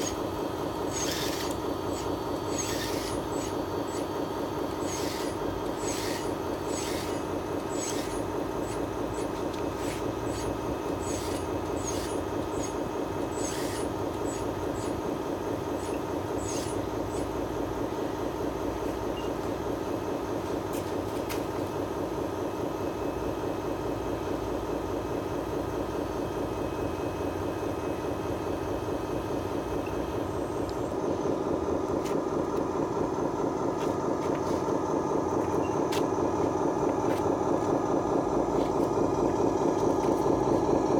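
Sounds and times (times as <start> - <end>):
toy excavator tracks whirring and rattling: 0.0 - 17.5.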